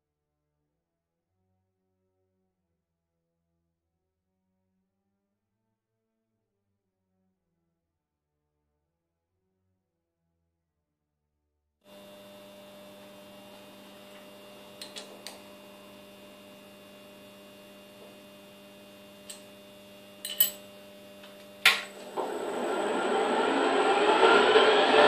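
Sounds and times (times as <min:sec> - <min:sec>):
milling machine humming: 0:11.9 - 0:25.0
spindle motor running up: 0:11.9 - 0:25.0.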